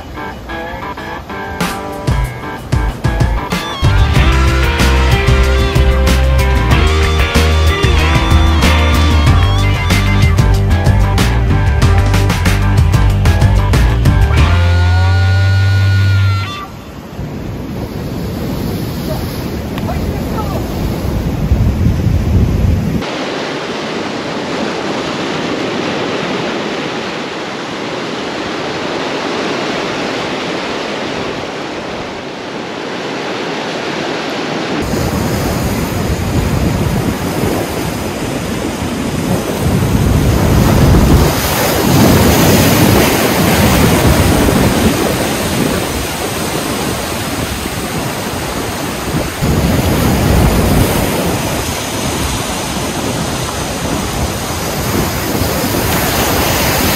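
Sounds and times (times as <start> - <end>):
wind rumbling on microphone: 16.5 - 56.9
surf breaking on rocks: 17.2 - 56.9.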